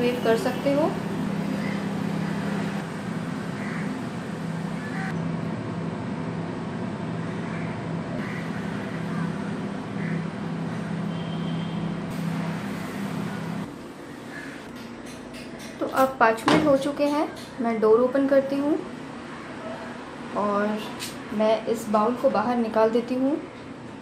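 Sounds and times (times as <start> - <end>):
microwave oven humming: 0.0 - 14.6.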